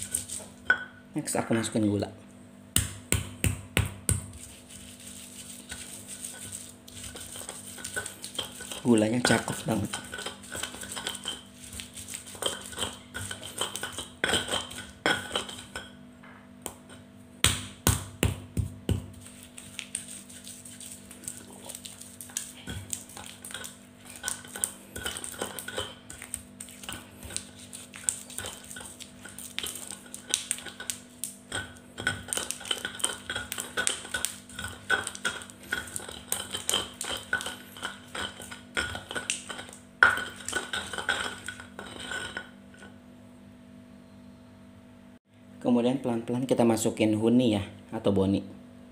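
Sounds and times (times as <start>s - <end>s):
stone pestle grinding in mortar: 0.0s - 0.6s, 2.8s - 16.0s, 16.7s - 43.0s
pestle knocking: 2.8s - 4.5s, 5.7s - 15.8s, 16.6s - 19.3s, 22.2s - 42.2s.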